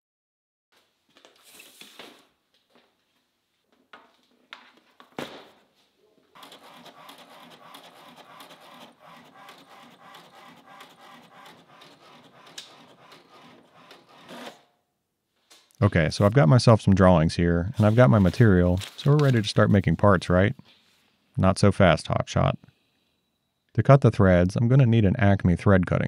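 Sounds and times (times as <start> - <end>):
drafting machine arm sliding: 6.4 - 14.6
inkjet printer printing: 6.4 - 14.7.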